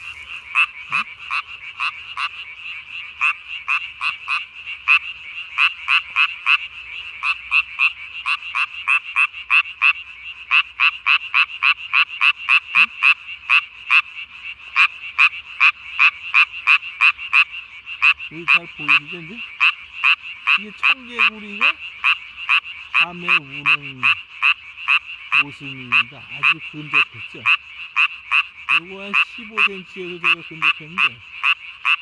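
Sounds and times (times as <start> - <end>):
tree frog croaking: 0.0 - 32.0.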